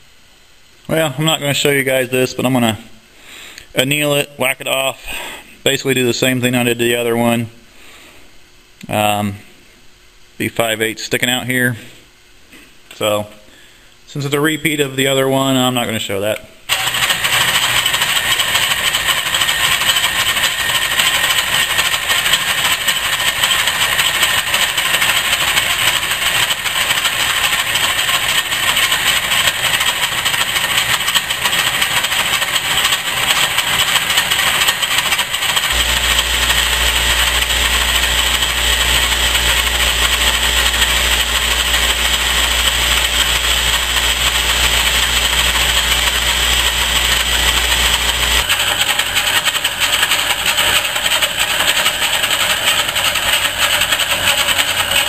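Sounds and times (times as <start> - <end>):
metal lathe machining: 16.7 - 55.0.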